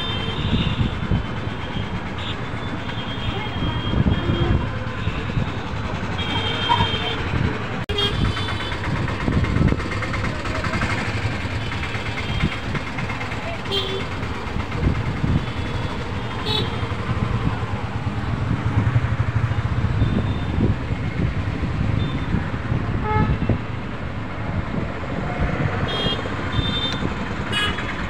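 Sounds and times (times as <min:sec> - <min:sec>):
road traffic noise: 0:00.0 - 0:28.0
vehicle horn toots: 0:25.9 - 0:27.9.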